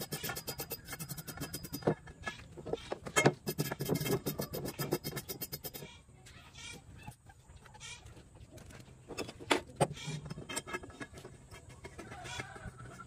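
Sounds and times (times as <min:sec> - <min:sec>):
farm animal calls: 0:05.7 - 0:08.3
metal clicks and knocks: 0:08.6 - 0:13.0.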